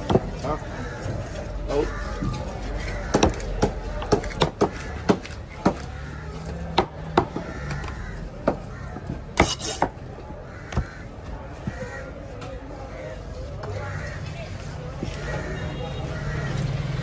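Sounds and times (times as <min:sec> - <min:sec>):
knife chopping on wooden block: 0:03.1 - 0:05.9, 0:08.4 - 0:10.0.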